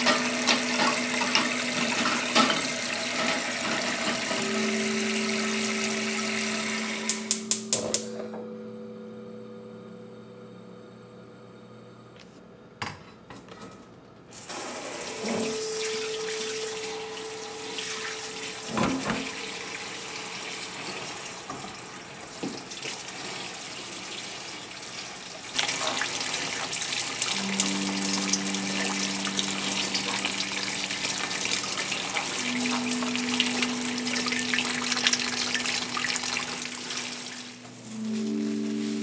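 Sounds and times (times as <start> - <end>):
faucet running into sink: 0.0 - 7.1, 14.5 - 37.6
steady held tones: 0.0 - 11.9, 27.1 - 39.0.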